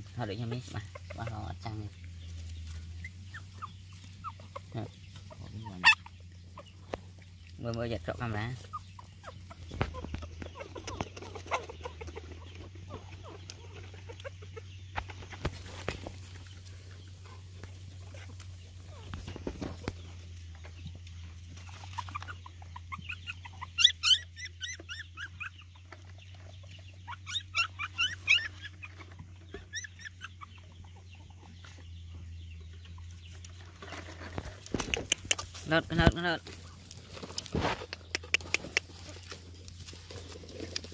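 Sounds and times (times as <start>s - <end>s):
high-pitched animal calls: 2.7s - 7.0s, 21.7s - 25.9s, 26.9s - 31.5s.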